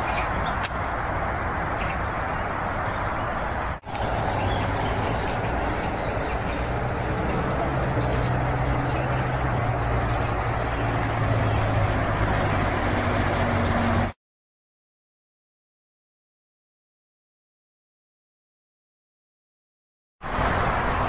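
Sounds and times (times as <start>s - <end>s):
outdoor rumble and hiss: 0.0s - 14.2s, 20.2s - 21.0s.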